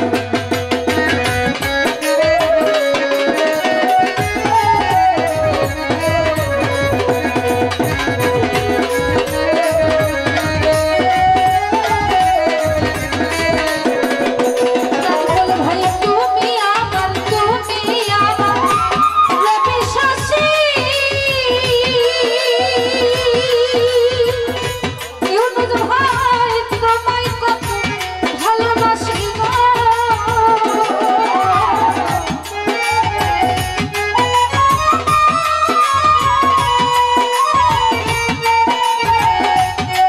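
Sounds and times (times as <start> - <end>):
hand drum: 0.0 - 40.0
keyboard: 0.0 - 40.0
woman singing: 1.0 - 40.0
bamboo flute melody: 2.0 - 15.8, 18.3 - 20.9, 30.6 - 40.0.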